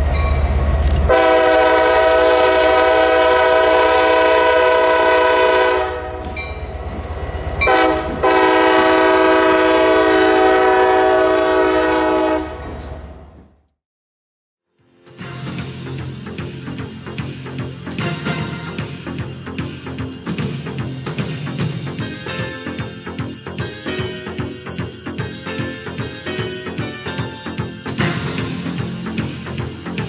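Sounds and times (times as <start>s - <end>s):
train rumbling: 0.0s - 13.7s, 14.9s - 30.0s
locomotive air horn blasts: 1.1s - 6.3s, 7.6s - 12.9s.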